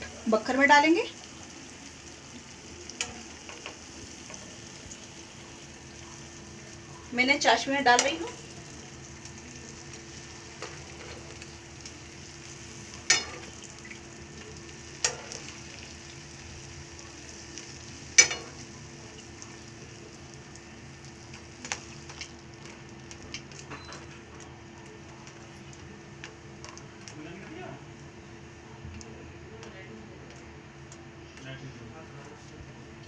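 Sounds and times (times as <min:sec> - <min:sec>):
food sizzling in hot oil: 0:00.0 - 0:24.1
metal tongs clacking on pan: 0:03.0 - 0:04.4, 0:07.9 - 0:08.4, 0:13.0 - 0:13.6, 0:15.0 - 0:15.6, 0:18.1 - 0:18.6.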